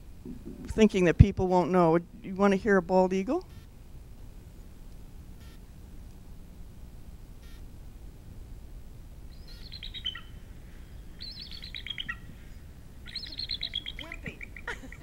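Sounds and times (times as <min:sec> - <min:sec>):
recorded eagle calls: 0:09.3 - 0:15.0.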